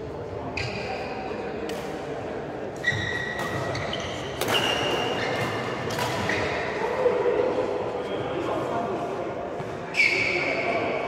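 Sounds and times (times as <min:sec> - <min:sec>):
rackets hitting shuttlecock: 0:02.8 - 0:06.6.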